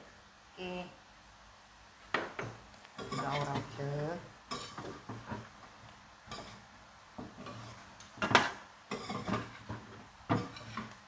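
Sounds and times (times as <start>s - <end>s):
metal spoon scraping a pot: 3.0s - 3.8s, 4.5s - 5.4s, 6.3s - 6.6s, 7.3s - 7.8s, 8.9s - 11.0s.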